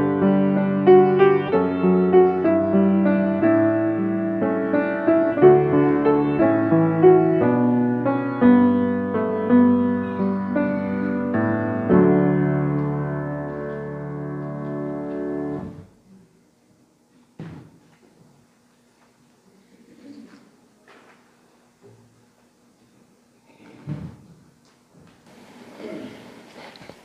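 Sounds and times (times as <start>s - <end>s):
grand piano chords: 0.0s - 16.0s.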